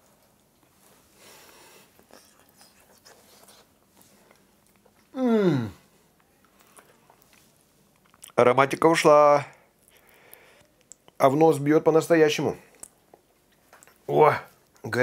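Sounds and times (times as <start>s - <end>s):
man chewing: 0.3s - 5.2s, 6.2s - 8.4s
vocal exclamation: 5.1s - 5.8s.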